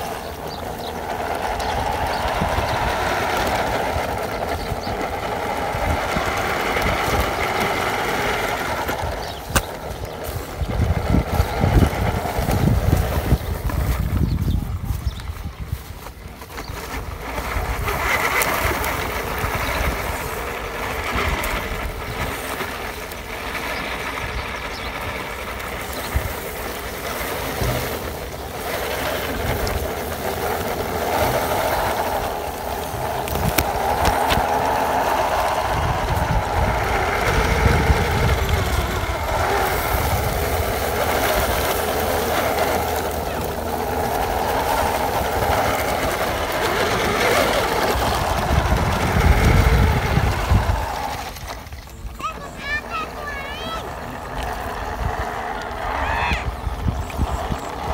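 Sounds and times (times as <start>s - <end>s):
electric motor and gears whining: 0.0s - 57.9s.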